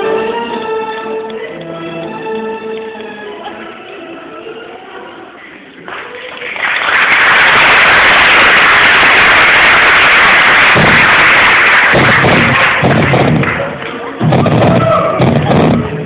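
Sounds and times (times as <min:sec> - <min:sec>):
audience applauding: 0:05.9 - 0:14.8.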